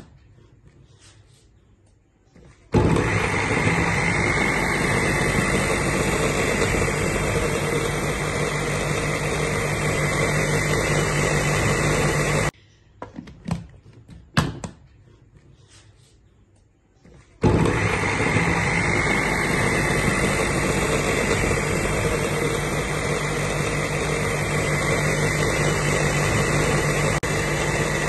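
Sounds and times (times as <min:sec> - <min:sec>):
blender running: 0:02.8 - 0:12.5, 0:17.4 - 0:28.0.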